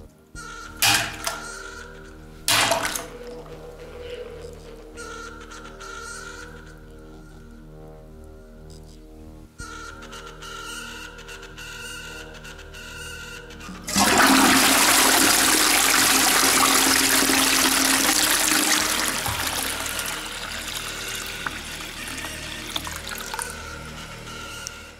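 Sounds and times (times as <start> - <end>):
toilet flushing: 0.8 - 1.5, 2.5 - 3.1, 13.7 - 24.7.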